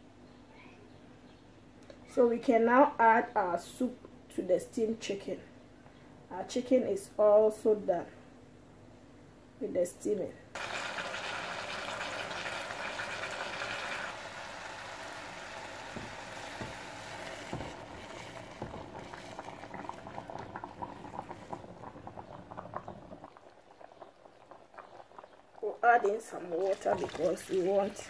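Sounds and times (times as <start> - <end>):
chicken sizzling in a hot pan: 10.6 - 21.2
soup bubbling with pops: 10.6 - 28.0.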